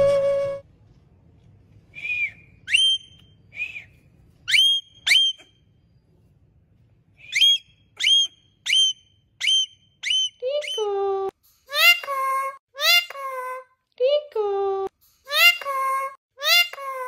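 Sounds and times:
parakeet whistling: 0:02.0 - 0:03.9, 0:04.5 - 0:05.6, 0:07.2 - 0:10.8.

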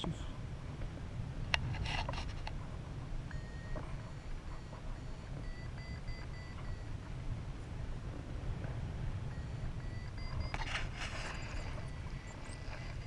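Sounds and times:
wind rumble on microphone: 0:00.0 - 0:13.0
variometer beeping: 0:03.2 - 0:07.3, 0:09.2 - 0:13.0.

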